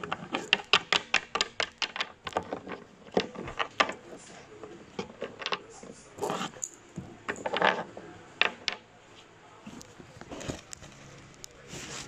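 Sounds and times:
plastic toys clattering: 0:00.0 - 0:08.9.

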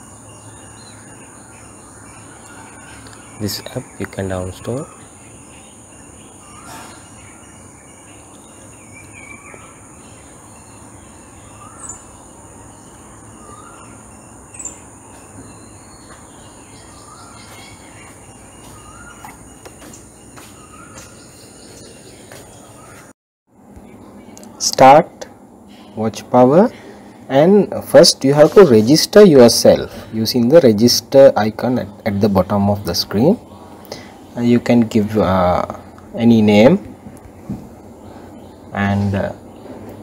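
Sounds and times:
rising bird chirps: 0:00.0 - 0:23.1.

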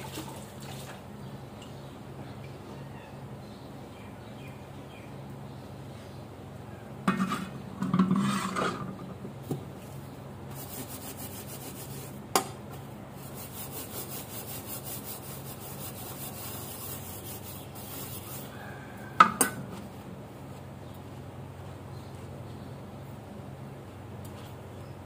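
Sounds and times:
scouring pad scrubbing wood: 0:10.6 - 0:12.1, 0:13.2 - 0:18.6.

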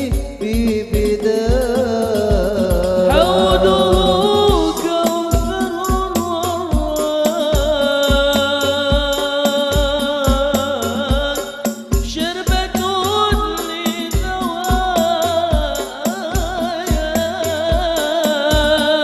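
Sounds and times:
deep bass drum beat: 0:00.0 - 0:19.0
frame drums: 0:00.0 - 0:19.0
man chanting into microphone: 0:00.0 - 0:19.0.

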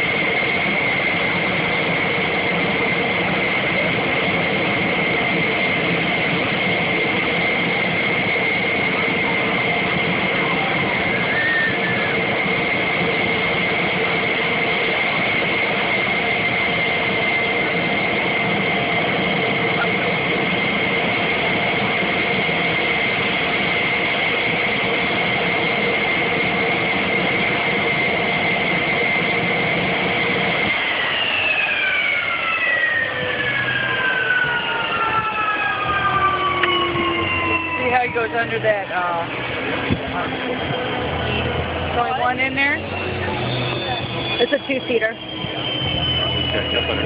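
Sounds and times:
jet engine whine: 0:00.0 - 0:47.0.

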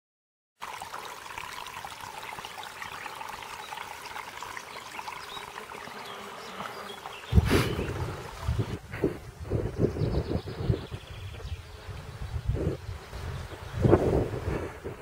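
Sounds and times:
outdoor hiss: 0:01.7 - 0:09.4
small ticks and chirps: 0:02.4 - 0:07.4
wind buffeting microphone: 0:07.3 - 0:15.0.

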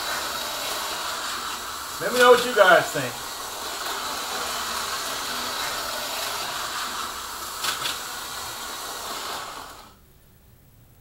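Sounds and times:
slot car motor whirring: 0:00.0 - 0:10.0.

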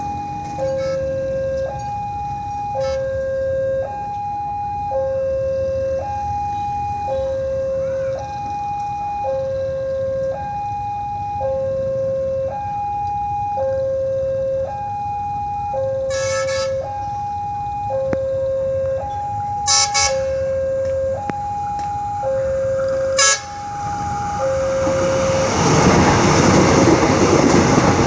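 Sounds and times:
low train rumble: 0:15.8 - 0:28.0
train horn blasts: 0:16.1 - 0:16.8, 0:19.7 - 0:20.4, 0:23.2 - 0:23.7.

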